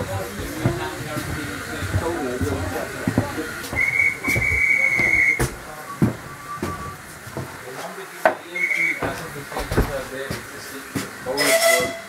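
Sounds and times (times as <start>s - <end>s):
railway whistle blowing: 3.7s - 7.0s, 8.6s - 9.0s, 11.4s - 12.0s.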